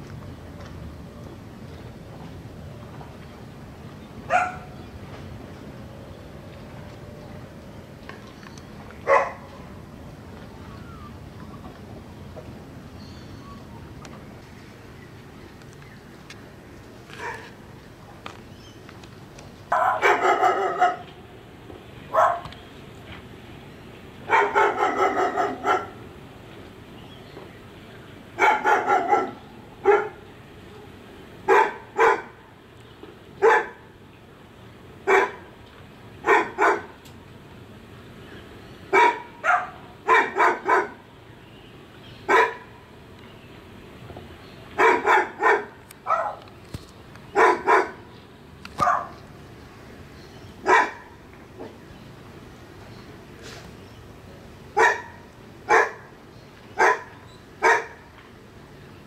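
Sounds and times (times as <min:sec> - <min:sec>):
dog barking: 0:04.3 - 0:04.7, 0:09.1 - 0:09.4, 0:19.7 - 0:21.1, 0:22.1 - 0:22.5, 0:24.3 - 0:26.0, 0:28.4 - 0:30.2, 0:31.5 - 0:32.4, 0:33.4 - 0:33.8, 0:35.1 - 0:35.4, 0:36.2 - 0:36.9, 0:39.0 - 0:41.0, 0:42.3 - 0:42.7, 0:44.8 - 0:46.4, 0:47.4 - 0:48.0, 0:48.8 - 0:49.2, 0:50.6 - 0:51.1, 0:54.8 - 0:56.1, 0:56.8 - 0:58.0.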